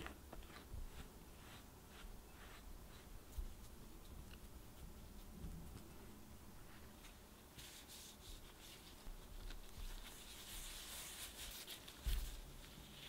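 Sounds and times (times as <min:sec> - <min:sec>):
paper and gloves rustling: 0:06.7 - 0:13.0.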